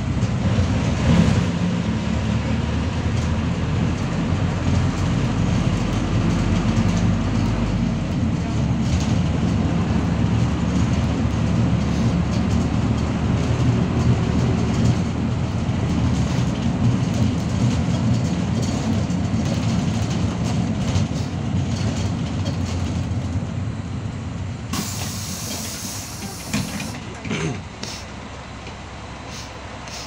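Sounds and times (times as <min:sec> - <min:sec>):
bus engine and road rumble: 0:00.0 - 0:30.0
panels and seats rattling: 0:04.0 - 0:23.6, 0:24.7 - 0:28.0
compressed air hiss: 0:24.8 - 0:27.0, 0:27.8 - 0:28.2, 0:29.3 - 0:30.0.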